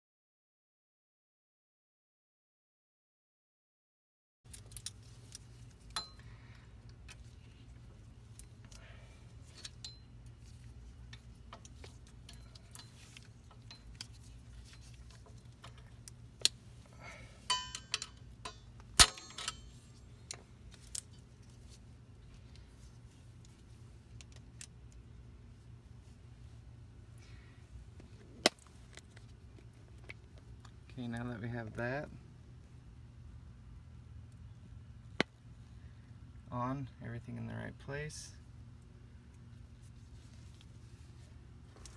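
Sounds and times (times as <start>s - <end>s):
metallic clicks of brake hardware: 4.5s - 7.3s, 8.3s - 16.6s, 17.4s - 21.3s.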